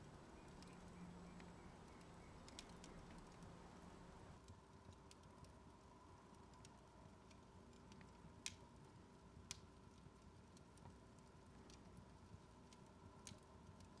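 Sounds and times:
low steady hum: 0:00.0 - 0:04.4
faint ticks: 0:00.0 - 0:05.6.

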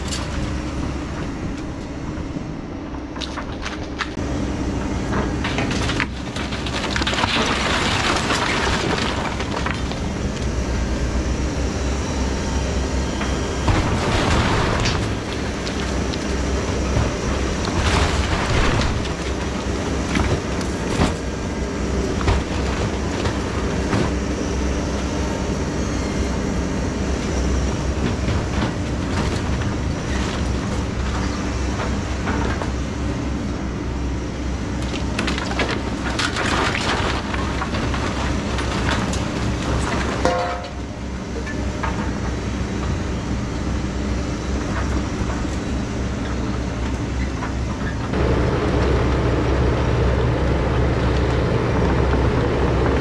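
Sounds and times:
excavator diesel engine running: 0:00.0 - 0:53.0
debris crashing down: 0:05.3 - 0:10.7, 0:13.3 - 0:24.3, 0:35.0 - 0:42.8
timber cracking and splintering: 0:05.5 - 0:10.5.

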